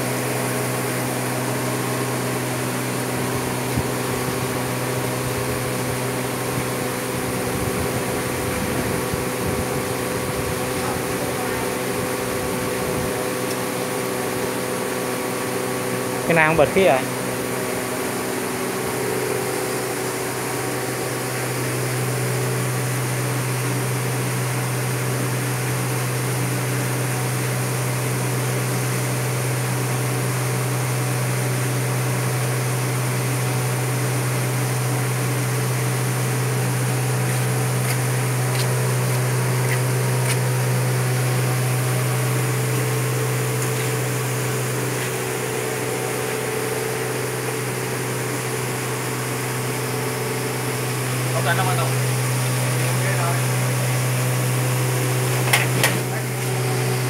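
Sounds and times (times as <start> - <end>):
electric motor humming: 35.2 - 57.0.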